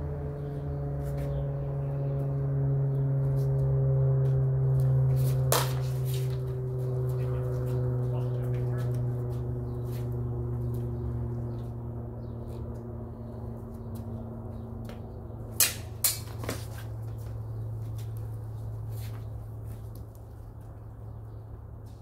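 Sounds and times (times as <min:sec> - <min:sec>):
steady low hum: 0:00.0 - 0:22.0
swords clashing: 0:15.6 - 0:16.6.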